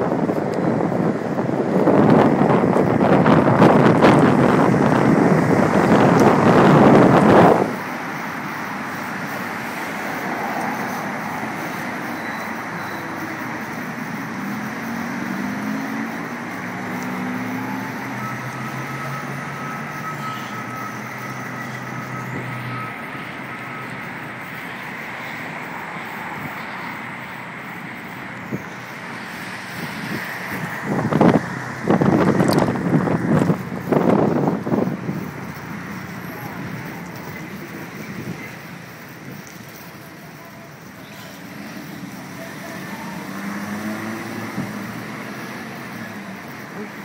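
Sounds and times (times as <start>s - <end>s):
low engine hum: 0.0s - 12.3s, 28.0s - 40.8s
road traffic engines and tyres: 0.0s - 47.0s.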